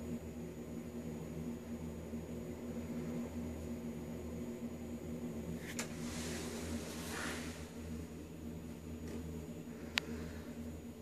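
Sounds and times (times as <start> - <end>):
soft hiss: 5.5 - 8.2.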